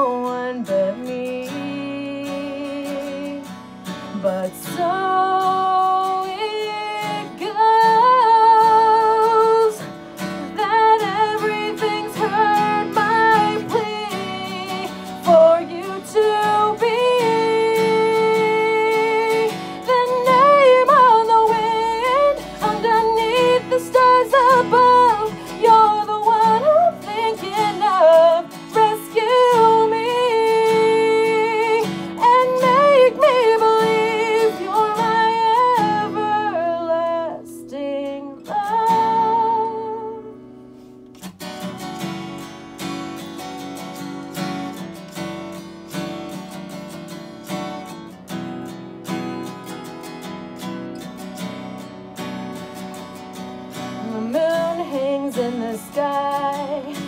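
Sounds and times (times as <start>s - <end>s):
woman singing with vibrato: 0.0s - 40.5s, 53.9s - 57.0s
strummed acoustic guitar: 0.0s - 57.0s.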